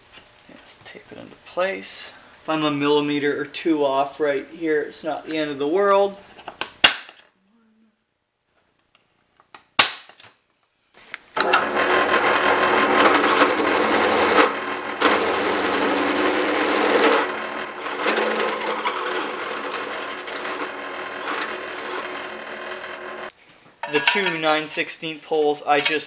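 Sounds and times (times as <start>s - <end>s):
center punch snap: 6.6s - 7.3s, 9.7s - 10.4s
drill press boring metal: 11.4s - 23.3s.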